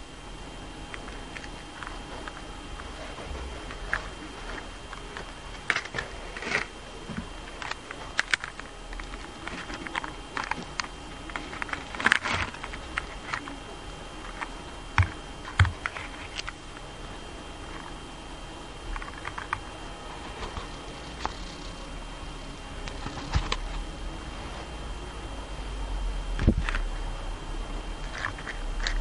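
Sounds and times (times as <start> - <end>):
plastic crackling and snapping: 0.9 - 6.7, 7.5 - 13.6, 18.9 - 19.7, 22.8 - 23.8.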